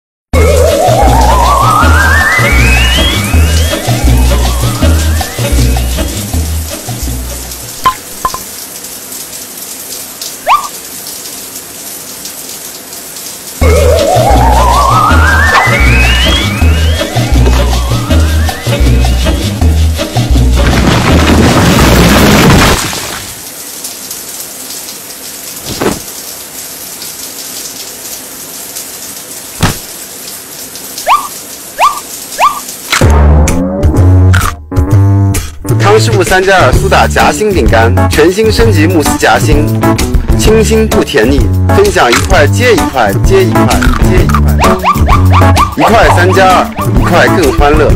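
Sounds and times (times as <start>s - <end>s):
music with rising slide: 0.4s - 7.0s, 13.6s - 21.4s
shower water hissing: 0.4s - 33.0s, 36.1s - 47.9s.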